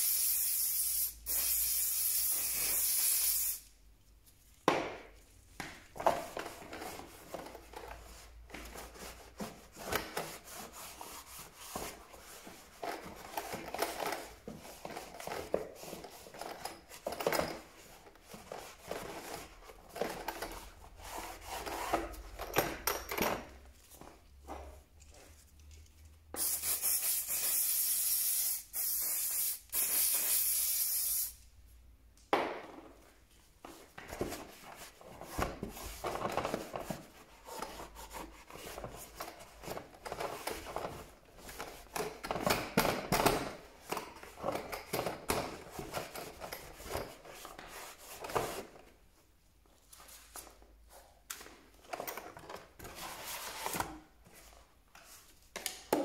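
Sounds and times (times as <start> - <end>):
aerosol spray can hissing: 0.0 - 3.7, 26.4 - 31.4.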